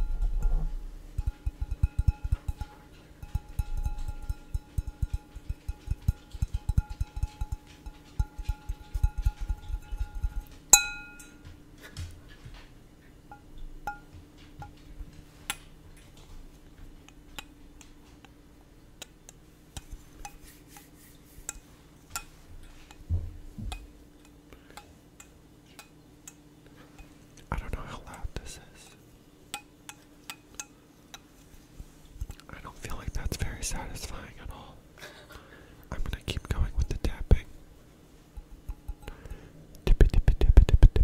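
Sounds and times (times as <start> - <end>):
glass ringing: 0.0 - 11.5, 13.3 - 14.1
fingertips tapping on glass: 0.0 - 11.6, 13.3 - 14.9, 19.0 - 29.0, 38.3 - 41.0
glass clinks: 1.2 - 11.5, 13.3 - 14.1.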